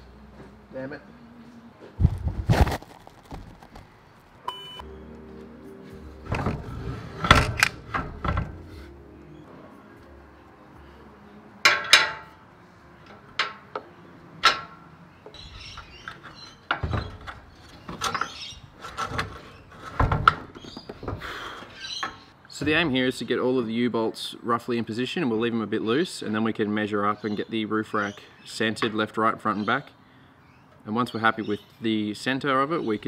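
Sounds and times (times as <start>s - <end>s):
faint background music: 0.0s - 2.0s, 4.4s - 17.3s.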